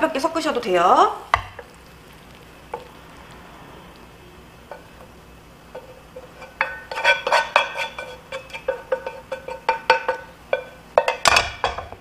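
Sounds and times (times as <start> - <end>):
wooden spatula scraping frying pan: 4.6 - 11.2
spatula clinking on ringing pan: 5.7 - 11.9.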